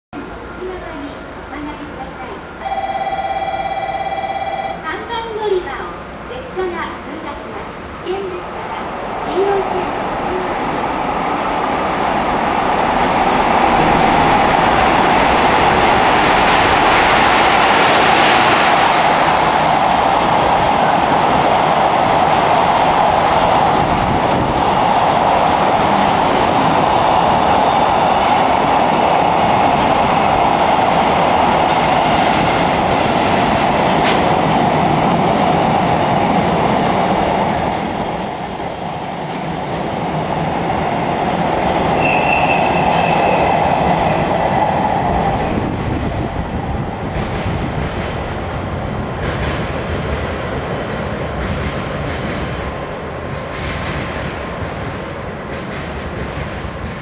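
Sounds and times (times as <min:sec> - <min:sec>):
train wheels rushing on rails: 0:05.0 - 0:57.0
high wheel squeal: 0:36.4 - 0:43.7.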